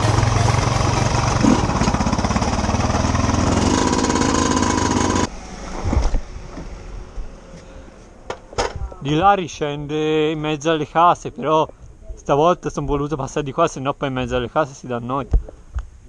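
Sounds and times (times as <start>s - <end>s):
two-stroke dirt bike engine: 0.0s - 6.6s.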